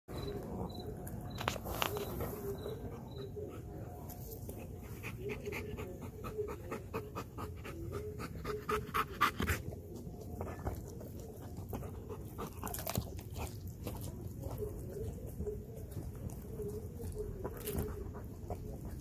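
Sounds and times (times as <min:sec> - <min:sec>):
dog panting hard: 0:04.8 - 0:13.6.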